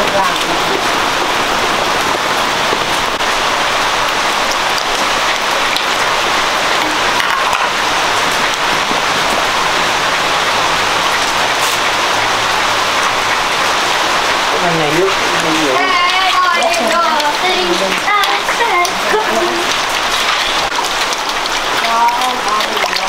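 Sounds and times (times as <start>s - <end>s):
meat sizzling in hot oil: 14.8s - 23.0s.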